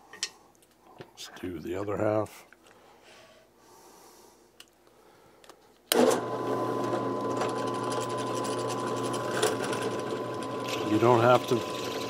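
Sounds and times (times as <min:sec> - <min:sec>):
drill press motor humming: 0:05.9 - 0:12.0.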